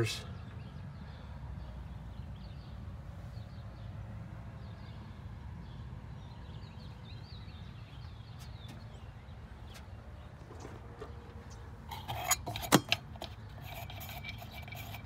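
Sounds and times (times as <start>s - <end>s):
small birds chirping: 0.0s - 12.3s.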